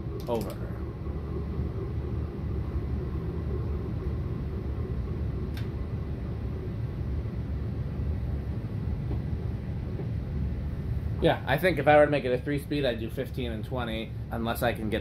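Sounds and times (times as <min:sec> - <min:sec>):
ceiling fan hum and rumble: 0:00.0 - 0:15.0
sharp click: 0:00.2 - 0:00.6.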